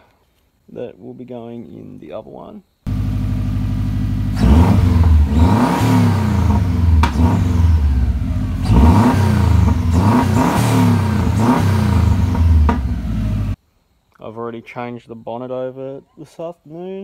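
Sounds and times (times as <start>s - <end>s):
car engine revving: 2.9s - 13.6s.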